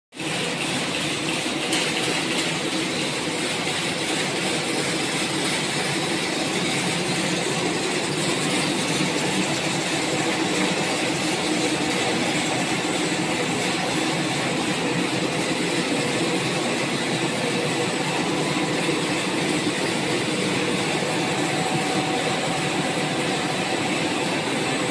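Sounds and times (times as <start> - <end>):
machine motors running: 0.2 - 24.9.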